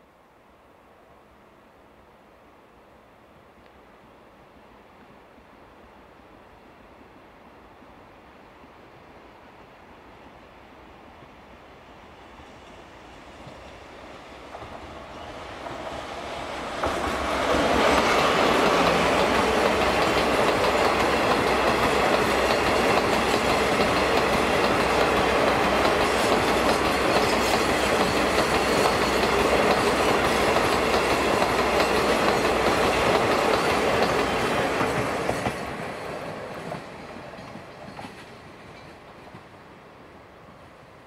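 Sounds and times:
freight train wheels on rails: 11.8s - 41.0s.

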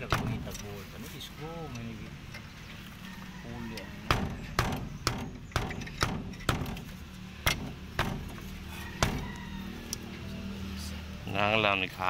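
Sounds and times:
air filter knocking on steel frame: 4.0s - 6.9s, 7.5s - 8.4s.

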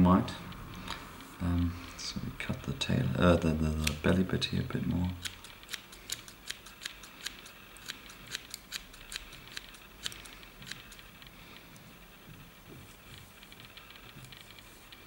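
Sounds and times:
scissors snipping hair fibres: 3.7s - 4.1s, 5.2s - 11.0s.

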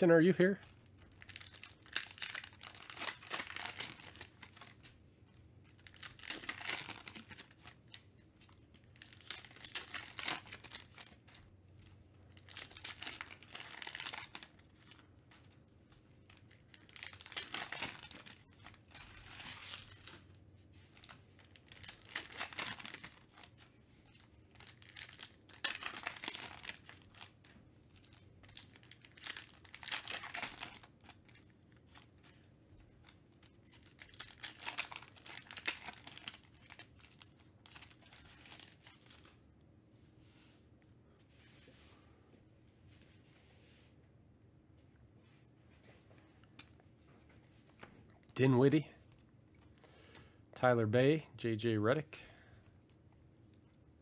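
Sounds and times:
foil packs tearing and crinkling: 1.1s - 4.8s, 5.7s - 8.0s, 8.7s - 11.4s, 12.3s - 15.0s, 16.2s - 20.2s, 21.0s - 32.1s, 33.0s - 39.3s.

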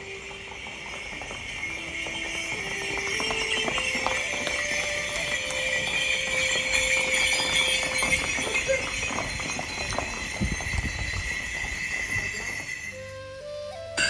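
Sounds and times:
horses galloping on dirt: 0.0s - 14.0s.

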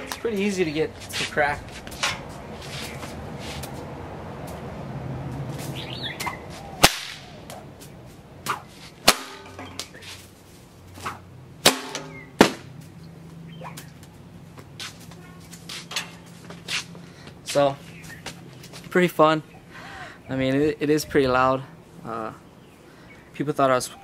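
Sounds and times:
whip cracking: 5.5s - 10.3s, 11.0s - 12.7s, 13.6s - 14.0s
soft whip snaps: 5.6s - 8.7s.

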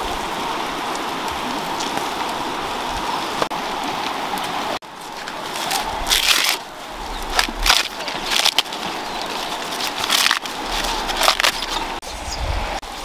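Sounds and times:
corn husks ripping: 5.2s - 12.0s.

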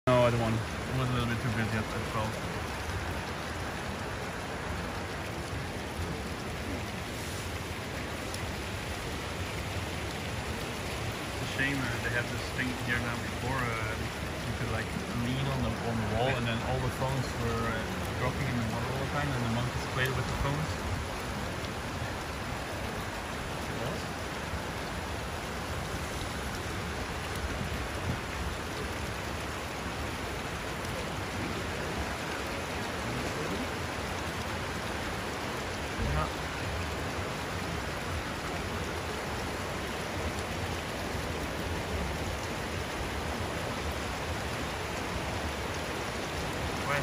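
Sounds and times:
water trickling over rocks: 0.1s - 47.0s.

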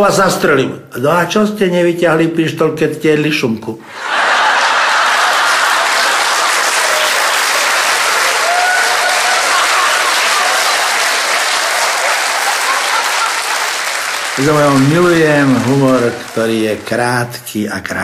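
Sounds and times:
audience applauding: 3.9s - 17.4s.

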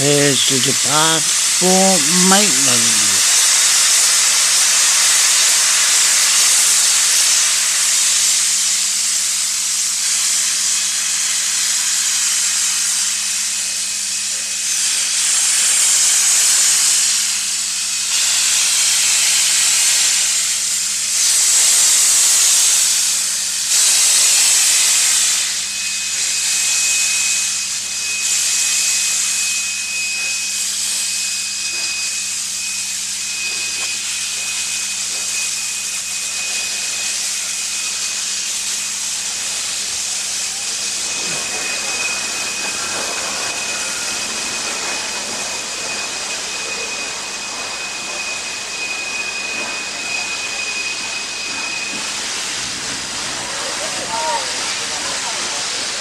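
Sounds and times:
steam locomotive hissing steam: 0.0s - 56.0s.

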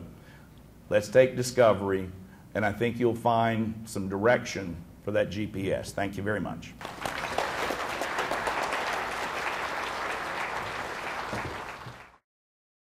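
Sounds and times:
audience applauding: 6.8s - 12.2s.

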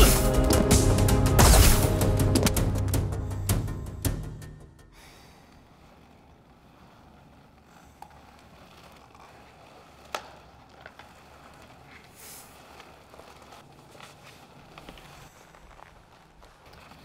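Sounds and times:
clothing and gear rustling: 5.0s - 17.0s.

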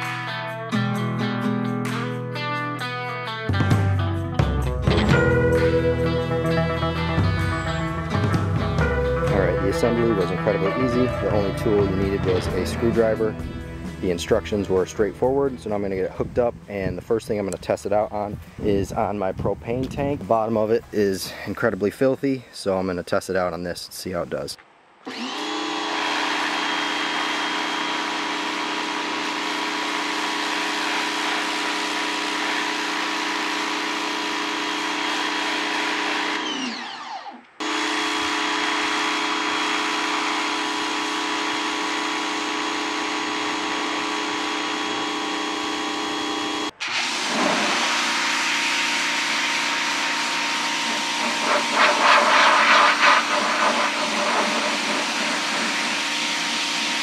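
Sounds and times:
pressure washer motor whine: 4.9s - 16.9s, 25.0s - 57.0s
water jet hissing: 46.7s - 57.0s.

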